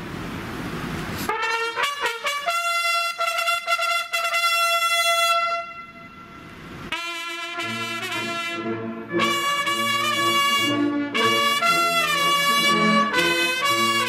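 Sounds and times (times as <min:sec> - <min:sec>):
brass band playing: 0:01.3 - 0:05.9, 0:06.9 - 0:14.0
solo trumpet call: 0:01.3 - 0:14.0.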